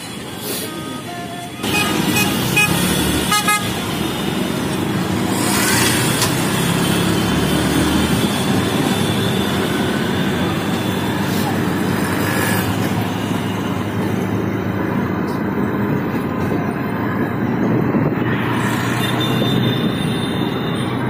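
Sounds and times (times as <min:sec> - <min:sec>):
rickshaw engine running: 0:00.0 - 0:17.8
street traffic: 0:00.0 - 0:21.0
vehicle horn toots: 0:00.6 - 0:03.9.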